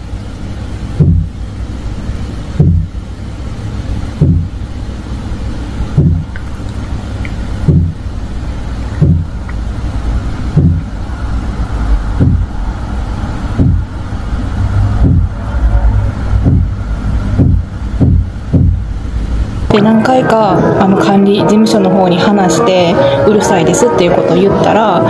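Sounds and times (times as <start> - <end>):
steady low hum: 0.0 - 25.0
dull booming thuds: 1.0 - 1.4, 2.5 - 3.0, 4.2 - 4.6, 5.9 - 6.4, 7.3 - 8.1, 8.9 - 9.5, 10.4 - 11.1, 11.9 - 12.8, 13.4 - 19.6.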